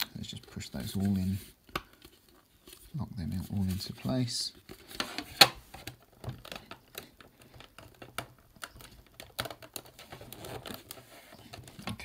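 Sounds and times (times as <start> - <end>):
plastic panels clicking together: 5.0 - 12.0.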